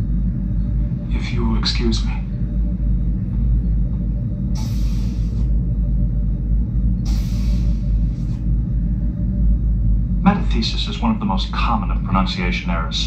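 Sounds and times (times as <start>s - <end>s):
steady low rumble: 0.0s - 13.0s
hissing swoosh of sliding doors: 4.6s - 5.6s, 7.0s - 8.5s.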